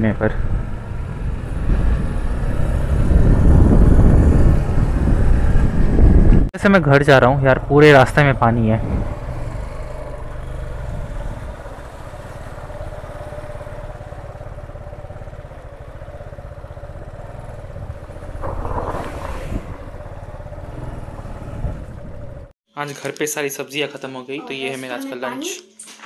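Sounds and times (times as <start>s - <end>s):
motorcycle engine low rumble: 0.0s - 22.6s
engine whine: 7.1s - 22.6s.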